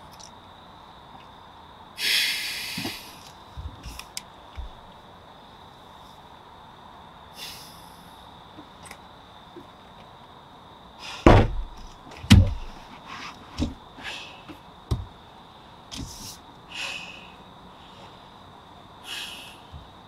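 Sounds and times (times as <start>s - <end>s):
hissing breaths: 2.0s - 4.1s, 7.3s - 8.4s, 10.9s - 11.8s, 12.6s - 14.7s, 15.5s - 18.4s, 19.0s - 20.0s
heavy banging on car: 11.2s - 12.8s, 14.9s - 15.1s.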